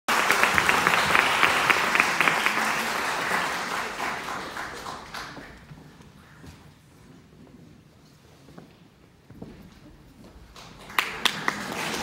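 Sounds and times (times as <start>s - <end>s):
audience applauding: 0.1s - 5.8s, 10.6s - 12.0s.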